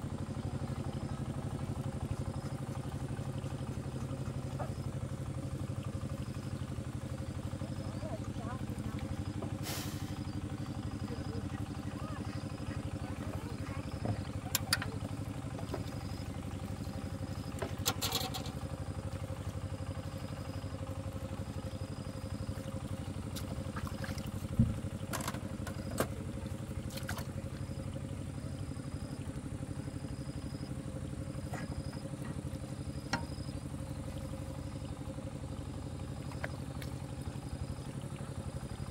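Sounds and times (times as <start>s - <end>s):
small engine idling: 0.0s - 38.9s.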